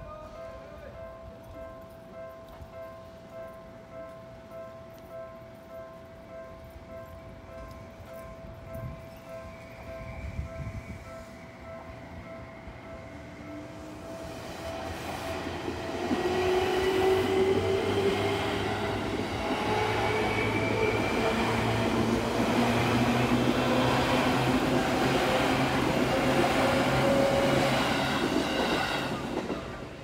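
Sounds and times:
crossing warning bell: 0.0s - 30.0s
train wheels rumbling on rails: 7.4s - 30.0s.

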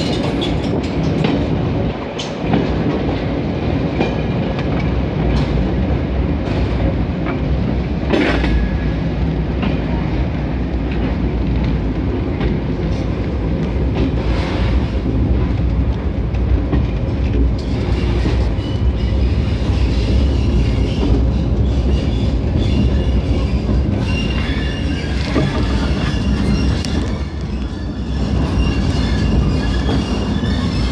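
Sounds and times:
high-pitched wheel squeal: 18.0s - 30.9s.

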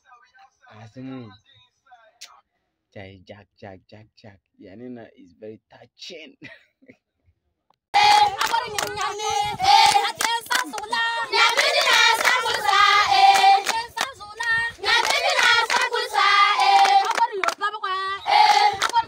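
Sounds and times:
children singing: 8.0s - 14.0s, 14.8s - 19.0s
hands clapping: 8.0s - 17.7s, 18.4s - 19.0s.

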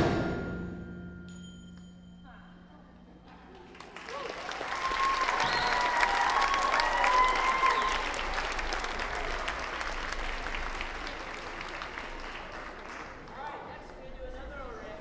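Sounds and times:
audience applauding: 3.3s - 14.0s
high calls from audience: 4.0s - 11.4s.

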